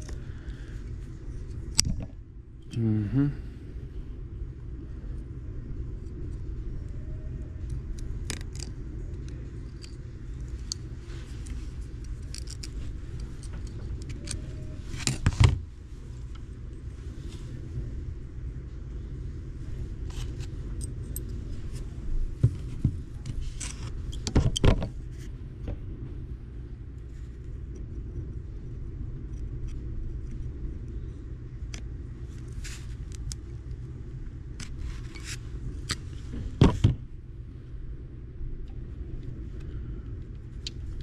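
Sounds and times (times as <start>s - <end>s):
steady low hum: 0.0s - 41.0s
small metal clicks and clinks: 7.9s - 14.4s.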